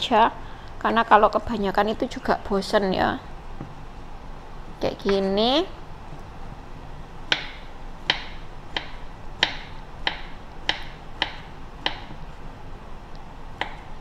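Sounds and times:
knife chopping on cutting board: 0:07.3 - 0:12.2, 0:13.6 - 0:13.9.

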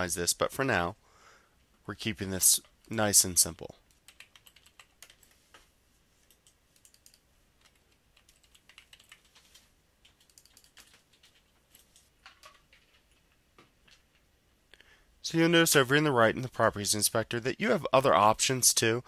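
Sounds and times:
computer keyboard typing: 0:03.8 - 0:05.6, 0:06.2 - 0:14.2.

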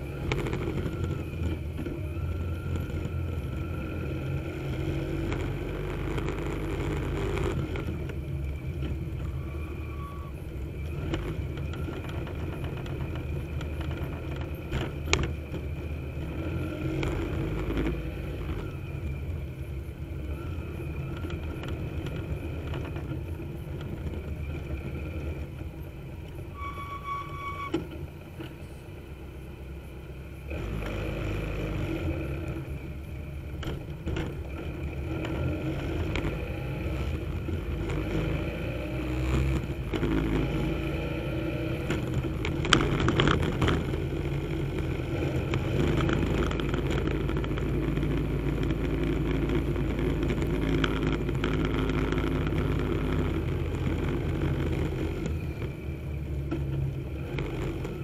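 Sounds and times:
wind and road rumble: 0:00.0 - 0:58.0
high-pitched squeal: 0:09.2 - 0:10.6, 0:26.5 - 0:27.8.

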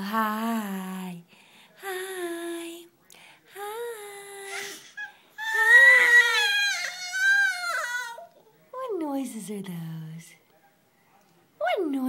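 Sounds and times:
baby vocalizing: 0:04.5 - 0:08.3.

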